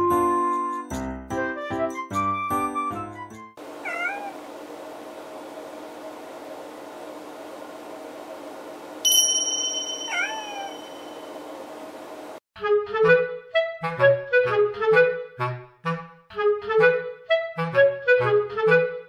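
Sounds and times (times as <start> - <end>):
cat meowing: 3.8 - 4.4, 10.1 - 10.9
bright ding: 9.1 - 11.5.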